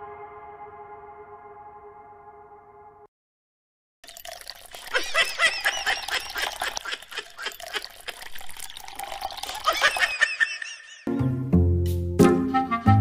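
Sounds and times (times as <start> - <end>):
water pouring from hand pump: 4.0 - 10.4.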